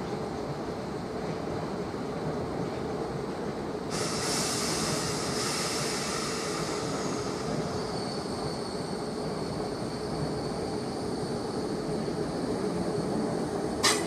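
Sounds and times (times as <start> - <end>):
train wheels rumbling on rail: 0.0 - 14.0
high hiss: 3.9 - 13.2.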